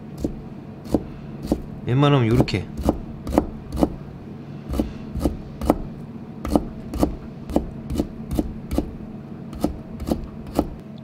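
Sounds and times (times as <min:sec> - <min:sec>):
knife slicing on cutting board: 0:06.4 - 0:08.9, 0:09.5 - 0:10.8.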